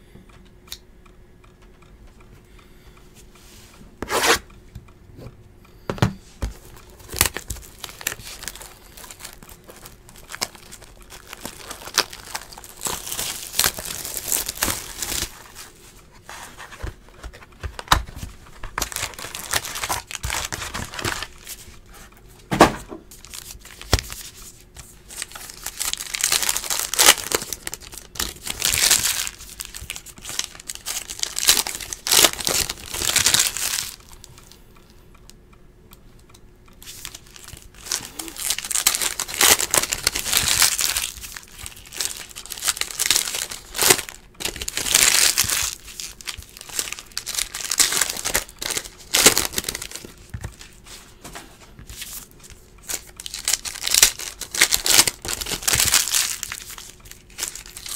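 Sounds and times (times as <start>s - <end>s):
wrappers crinkling and tearing: 6.6s - 15.7s, 17.2s - 21.7s, 23.2s - 34.2s, 36.8s - 50.8s, 52.9s - 57.9s.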